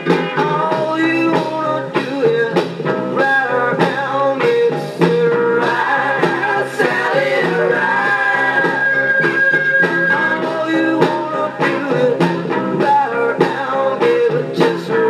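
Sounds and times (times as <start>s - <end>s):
electric guitar: 0.0s - 15.0s
man singing: 0.0s - 15.0s
rock and roll record playing: 0.0s - 15.0s.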